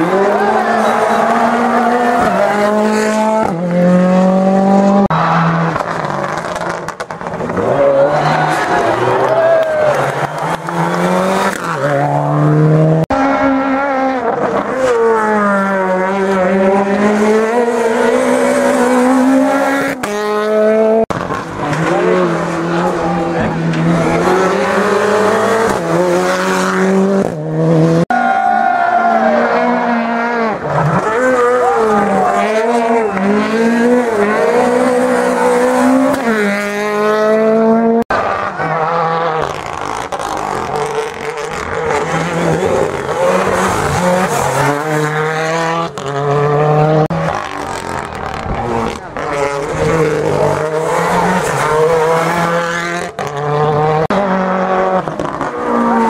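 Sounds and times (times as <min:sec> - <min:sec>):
rally cars revving past: 0:29.0 - 0:56.0.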